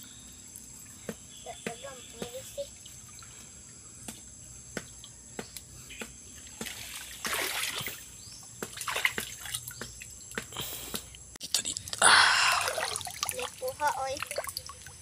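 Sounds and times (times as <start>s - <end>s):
water splashing and sloshing: 0.5s - 11.1s, 11.8s - 15.0s.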